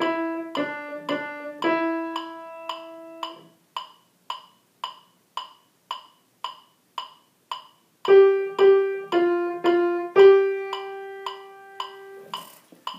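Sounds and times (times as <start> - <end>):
piano notes ringing: 0.0 - 3.6, 8.1 - 12.3
metronome clicking: 0.0 - 12.9.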